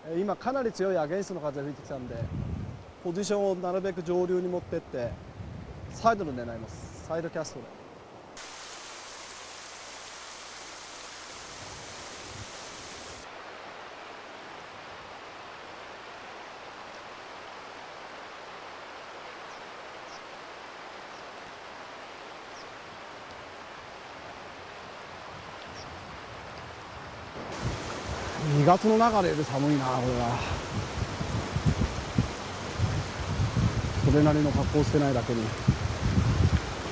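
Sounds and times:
wind gusts on microphone: 2.0s - 3.0s, 4.6s - 7.1s, 8.4s - 13.3s, 24.7s - 36.9s
river rushing over rocks: 27.3s - 36.9s.

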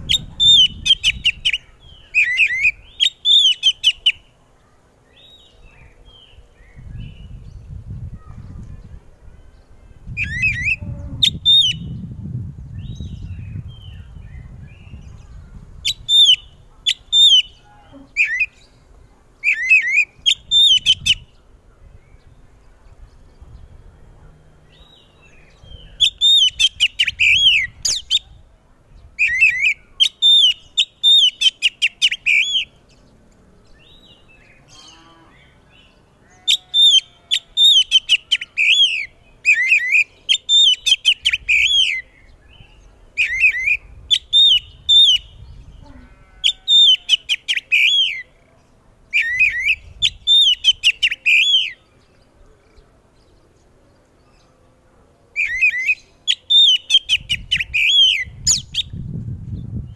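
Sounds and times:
bird singing whistled phrases: 10.2s - 12.0s, 25.7s - 28.3s, 36.8s - 45.4s, 46.8s - 48.2s, 49.2s - 51.8s, 55.4s - 59.0s.

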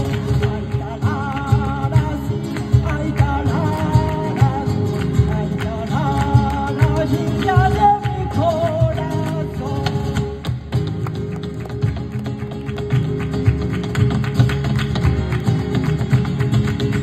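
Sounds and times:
person singing: 0.0s - 10.6s
flamenco guitars: 0.0s - 17.0s
hand-clapping: 0.0s - 17.0s
percussion beat: 0.0s - 17.0s.

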